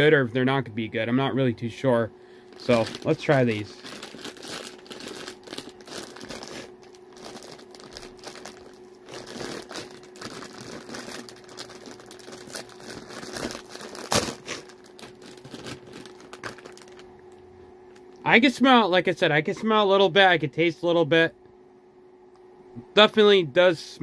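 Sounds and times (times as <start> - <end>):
plastic wrapper crinkling: 2.5 - 17.4.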